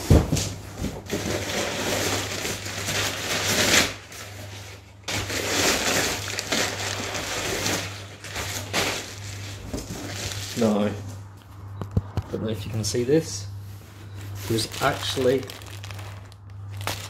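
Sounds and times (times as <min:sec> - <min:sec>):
paper packing rustling and crackling: 0:00.0 - 0:11.3, 0:12.4 - 0:17.0.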